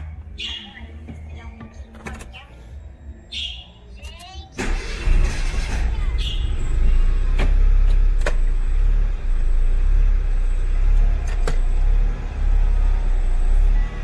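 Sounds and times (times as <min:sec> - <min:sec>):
car engine at low revs: 0:05.1 - 0:14.0.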